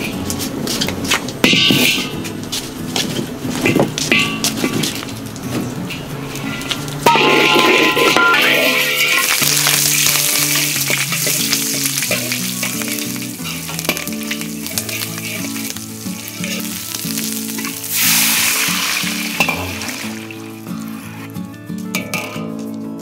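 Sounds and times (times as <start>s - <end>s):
background music: 0.0s - 23.0s
food sizzling in hot oil: 6.3s - 21.1s.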